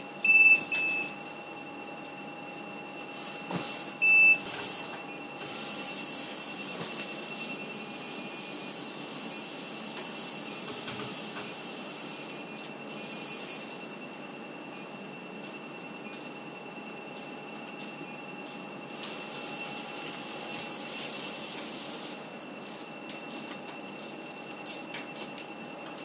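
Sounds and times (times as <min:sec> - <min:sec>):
short high beep: 0:04.0 - 0:04.4.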